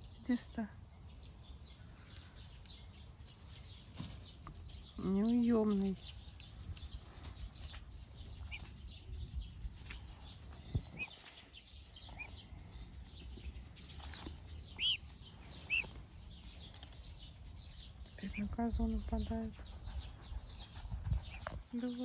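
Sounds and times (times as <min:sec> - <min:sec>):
soft rustling: 0:03.5 - 0:08.9, 0:13.2 - 0:17.0.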